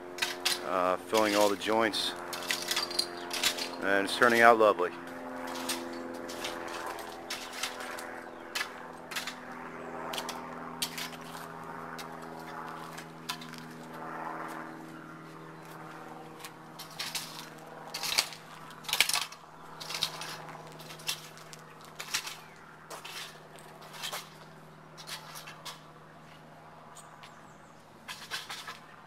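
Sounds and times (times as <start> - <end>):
low motor hum: 0.0 - 29.0
push broom sweeping sand: 0.6 - 4.5.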